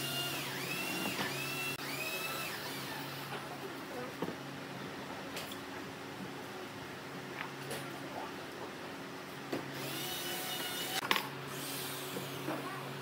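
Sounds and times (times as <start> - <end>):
power tool whine: 0.0 - 3.4, 9.7 - 12.6
workshop machinery hum: 0.0 - 13.0.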